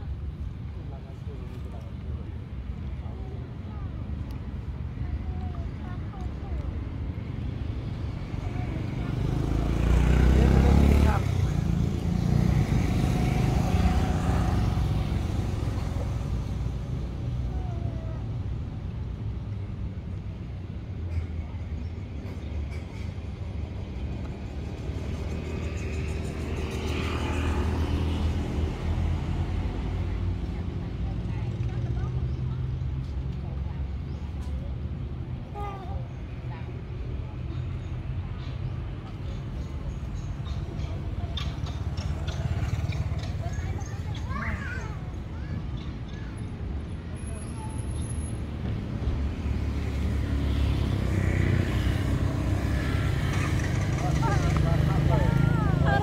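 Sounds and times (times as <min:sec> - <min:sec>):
vehicle engine rumbling: 0:00.0 - 0:56.0
motor vehicle engine drone: 0:07.0 - 0:20.1, 0:48.0 - 0:56.0.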